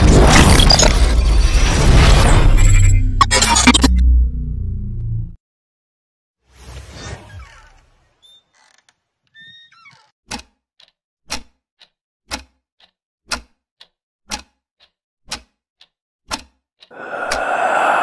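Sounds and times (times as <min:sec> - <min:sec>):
wall clock ticking: 0:10.3 - 0:17.5
swell: 0:17.0 - 0:18.0.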